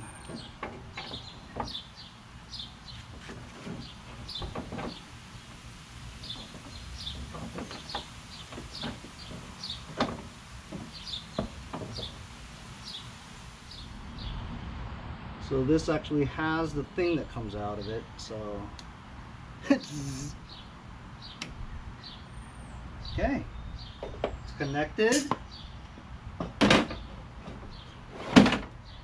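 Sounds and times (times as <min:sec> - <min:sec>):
plastic hood knocking and clicking: 0:03.1 - 0:05.0, 0:06.3 - 0:12.2, 0:26.4 - 0:27.7
small bird chirping: 0:10.9 - 0:12.2.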